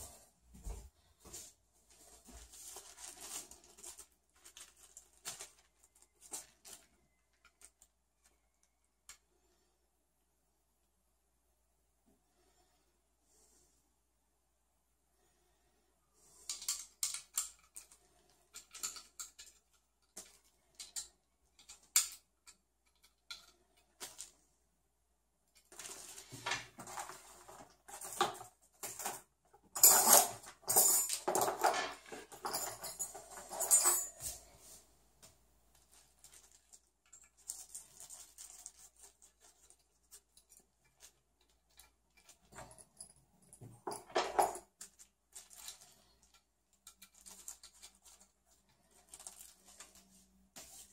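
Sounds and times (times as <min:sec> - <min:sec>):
hand tools rattling in a case: 0:26.8 - 0:34.4.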